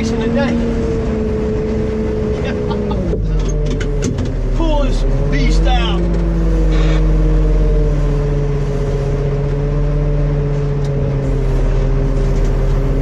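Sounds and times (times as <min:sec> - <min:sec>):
grader diesel engine running: 0:00.0 - 0:13.0.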